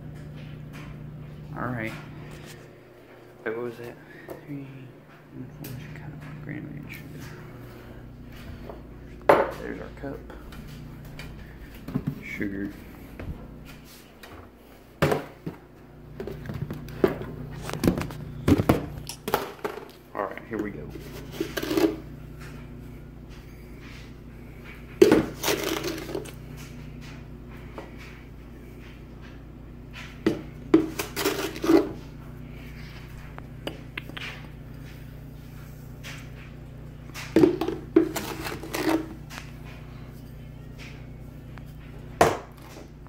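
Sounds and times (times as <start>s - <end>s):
plastic containers clattering: 16.2s - 20.0s, 25.0s - 26.4s, 30.3s - 32.0s, 37.2s - 39.5s.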